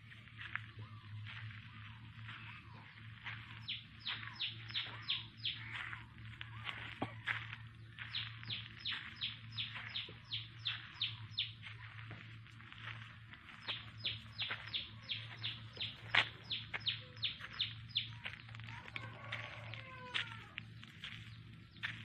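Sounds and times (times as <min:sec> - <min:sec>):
steady low hum: 0:00.0 - 0:22.0
bird chirping rapidly: 0:08.0 - 0:11.6, 0:13.6 - 0:18.4.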